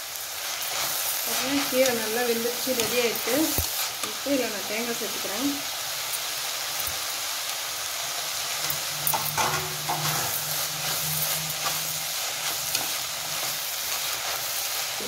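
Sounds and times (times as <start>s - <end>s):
food sizzling: 0.0s - 15.0s
spatula scraping a pan: 8.6s - 15.0s.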